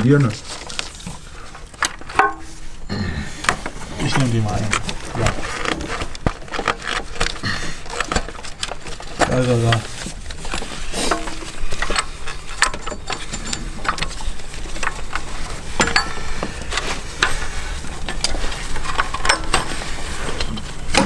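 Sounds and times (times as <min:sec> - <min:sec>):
low steady hum: 0:00.0 - 0:21.0
hand tools clinking on metal: 0:01.8 - 0:02.6, 0:06.9 - 0:21.0.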